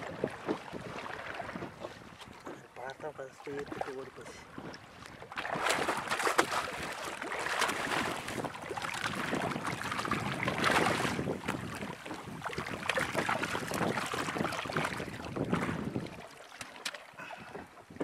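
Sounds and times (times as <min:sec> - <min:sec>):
wind on microphone: 0:00.0 - 0:02.5, 0:04.5 - 0:16.4, 0:17.2 - 0:18.0
fish splashing at water surface: 0:05.3 - 0:11.2.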